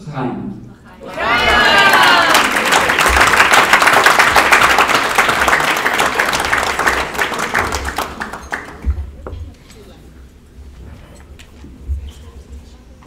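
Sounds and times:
crowd applauding: 0:01.0 - 0:09.2.

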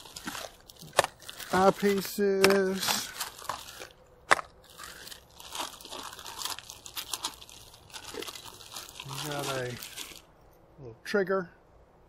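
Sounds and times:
plastic packaging crinkling: 0:00.0 - 0:10.3.

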